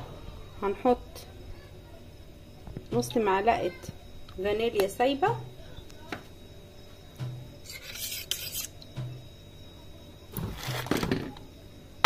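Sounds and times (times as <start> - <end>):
metal spoon scraping a bowl: 7.6 - 8.9.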